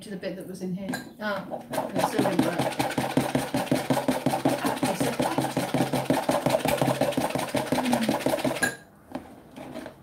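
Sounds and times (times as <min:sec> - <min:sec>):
whisk beating slime in a plastic jug: 0:01.5 - 0:08.8, 0:09.6 - 0:10.0.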